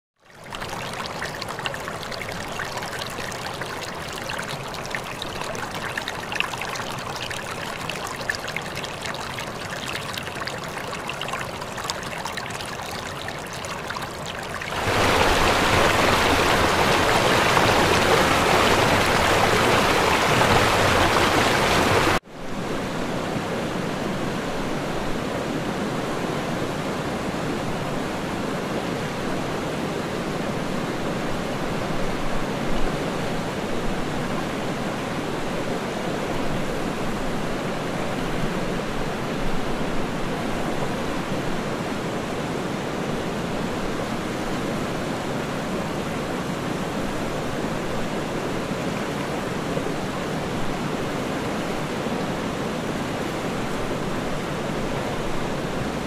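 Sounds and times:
waterfall rushing: 0:00.4 - 0:22.2.

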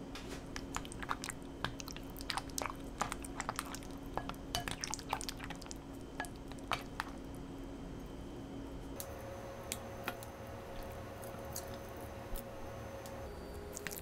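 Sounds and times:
wet squishes of spatula mixing: 0:00.6 - 0:07.2.

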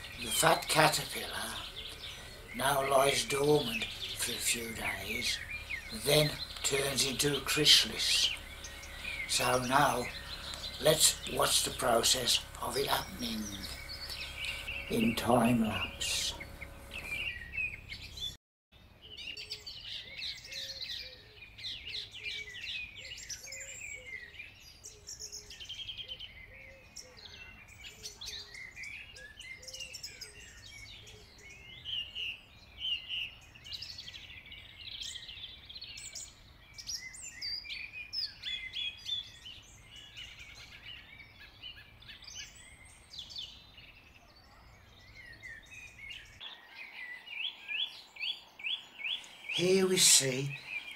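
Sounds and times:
repeated low bird note: 0:00.0 - 0:18.1
birds chirping: 0:00.0 - 0:50.9.

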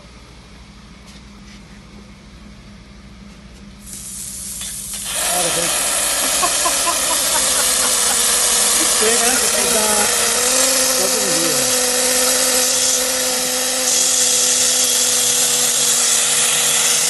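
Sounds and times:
air and water blasting from valve: 0:03.8 - 0:17.0.

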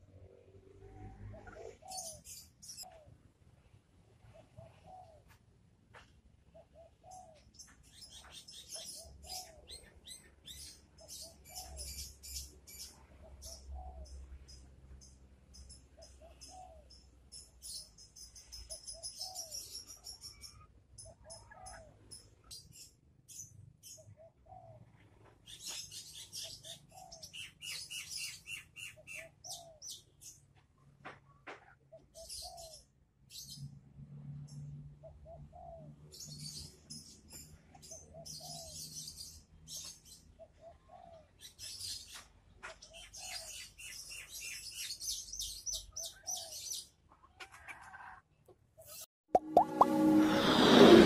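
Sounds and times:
small birds chirping: 0:00.2 - 0:05.4, 0:06.0 - 0:33.8, 0:34.4 - 0:49.1
dove cooing: 0:00.9 - 0:03.1, 0:04.3 - 0:05.3, 0:16.0 - 0:16.9, 0:40.4 - 0:41.3.

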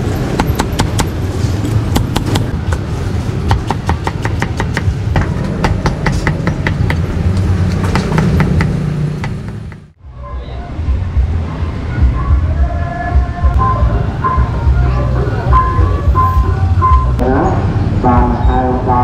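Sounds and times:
low rumble of street traffic: 0:00.0 - 0:19.0
cleaver chopping on wooden block: 0:00.4 - 0:01.1, 0:01.9 - 0:02.8, 0:03.5 - 0:07.0, 0:07.8 - 0:09.8.

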